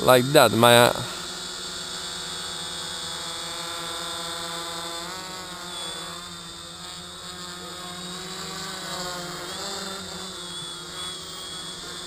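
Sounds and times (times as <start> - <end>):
quadcopter propellers buzzing: 0.0 - 12.0.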